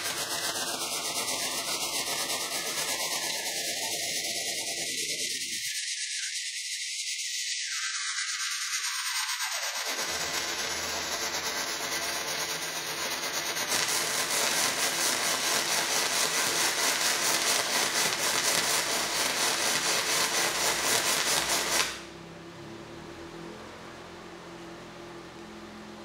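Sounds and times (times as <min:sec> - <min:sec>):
welding arc crackling: 0:00.0 - 0:05.9, 0:07.2 - 0:22.1.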